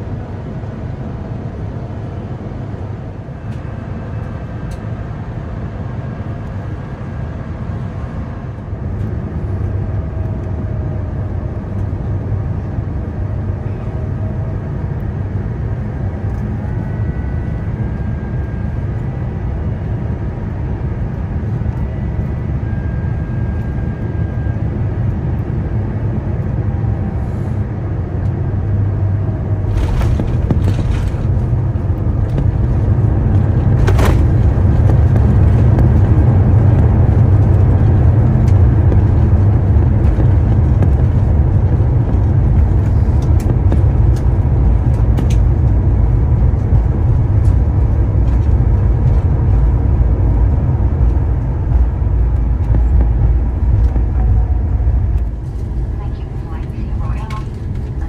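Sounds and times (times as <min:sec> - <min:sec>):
jet airliner cabin rumble: 0:00.0 - 0:58.0.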